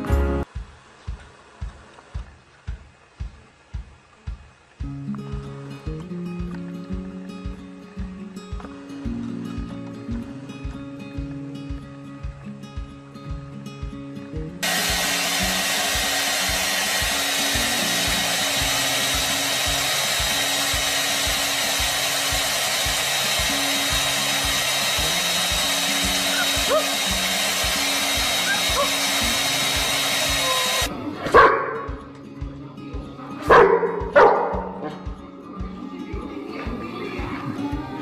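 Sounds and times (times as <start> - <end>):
hair dryer running: 14.6 - 30.9
dog barking loudly: 26.3 - 27.1, 28.4 - 29.0, 31.3 - 31.9, 33.5 - 35.0.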